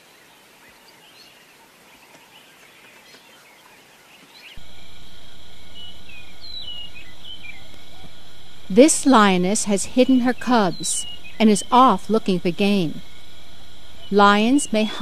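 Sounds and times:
high insect whine: 4.6 - 15.0.

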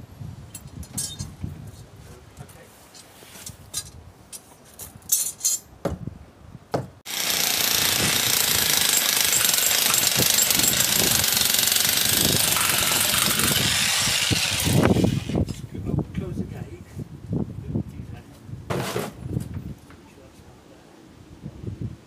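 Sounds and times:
tools knocking and clinking: 0.5 - 1.3, 5.1 - 5.7, 8.8 - 11.8
demolition hammer chiselling: 7.1 - 15.0.

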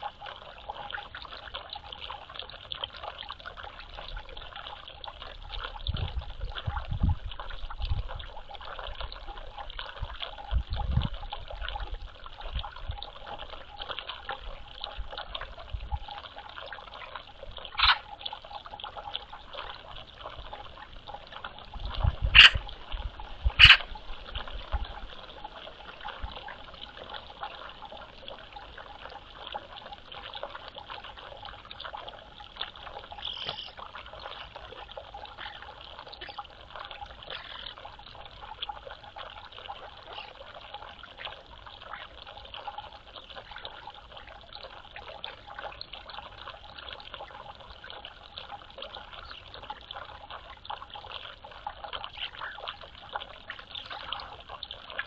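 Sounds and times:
water trickling and splashing: 0.0 - 55.0.

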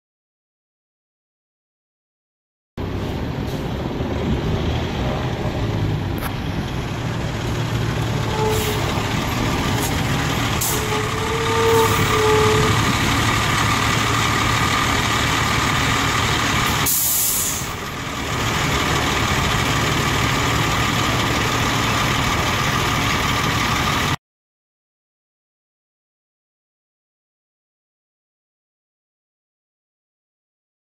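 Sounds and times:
diesel engine running: 2.8 - 24.2
brake squeals: 6.2 - 24.2
air brakes hissing: 8.2 - 12.9, 16.7 - 17.9.

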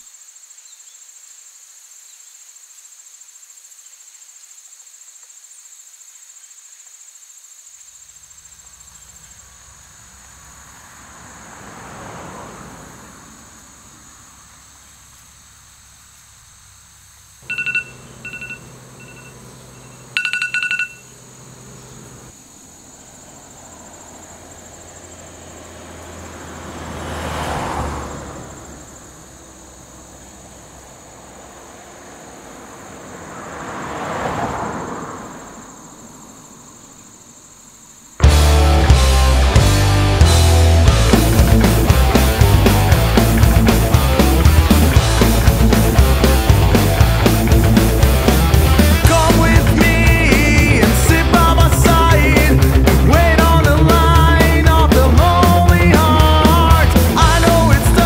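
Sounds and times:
electronic beeping: 17.4 - 21.1
steady high tone: 17.4 - 21.2.

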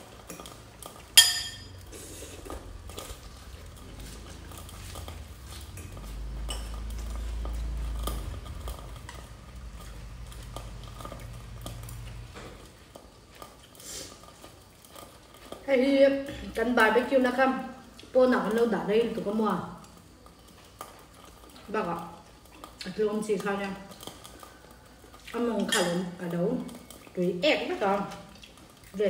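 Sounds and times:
cutlery clinking on ceramic bowls: 0.2 - 1.8.

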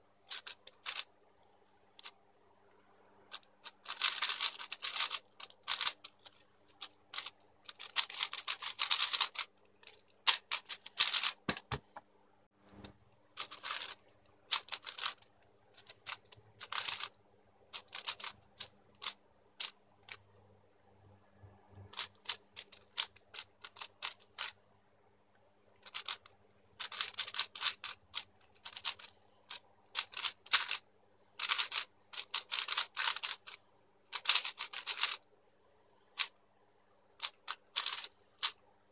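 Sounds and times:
speed cube clicking: 0.3 - 1.1, 3.3 - 11.8, 13.4 - 17.1, 17.8 - 20.2, 21.9 - 24.6, 25.8 - 30.8, 31.4 - 35.2, 37.2 - 38.6.

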